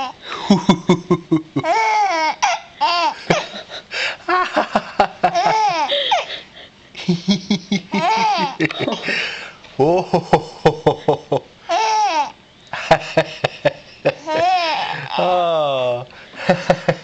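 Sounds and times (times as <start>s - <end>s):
baby cooing and squealing: 1.6s - 3.2s, 11.7s - 12.4s, 14.2s - 15.2s
baby laughing: 1.6s - 3.8s, 5.1s - 6.4s, 7.4s - 9.2s, 11.7s - 15.2s.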